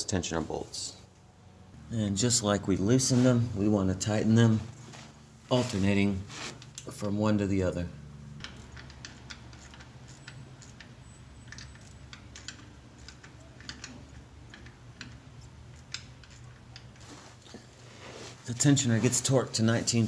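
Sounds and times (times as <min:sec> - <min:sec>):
hand ratchet clicking: 0:08.4 - 0:17.0.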